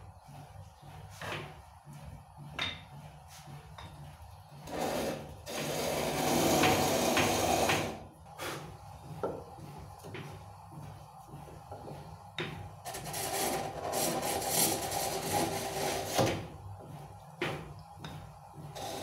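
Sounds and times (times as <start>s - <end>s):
tool scraping wood on lathe: 4.6s - 8.6s, 12.9s - 16.3s.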